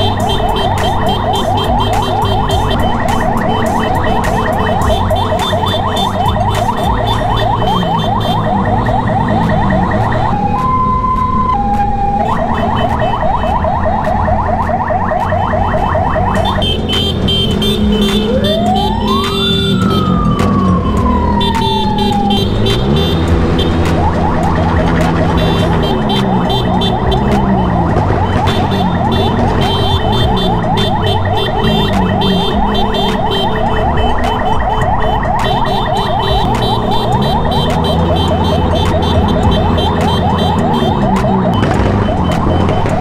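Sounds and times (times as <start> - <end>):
electronic siren: 0.0 - 43.0
motorcycle engine running: 15.0 - 43.0.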